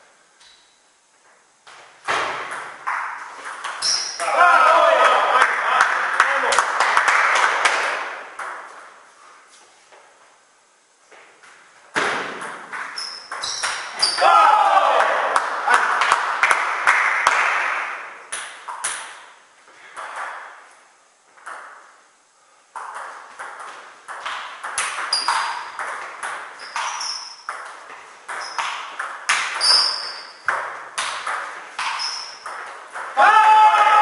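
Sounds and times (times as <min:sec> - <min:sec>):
shoe squeaks: 0:03.8 - 0:04.2, 0:13.0 - 0:14.2, 0:25.1 - 0:25.8, 0:26.6 - 0:27.5, 0:28.3 - 0:28.7, 0:29.6 - 0:30.5, 0:31.8 - 0:32.5.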